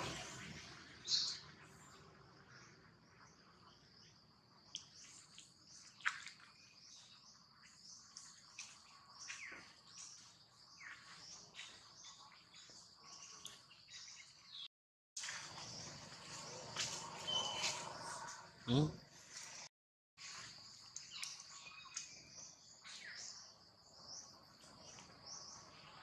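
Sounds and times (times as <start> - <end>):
birds chirping: 0.0 - 19.7
insects droning: 15.2 - 19.6.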